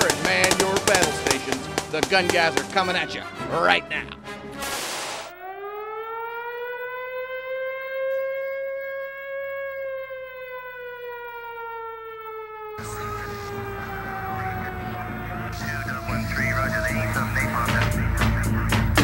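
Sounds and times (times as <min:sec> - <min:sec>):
music: 0:00.0 - 0:04.7, 0:12.8 - 0:19.0
air-raid siren wail: 0:05.3 - 0:18.8.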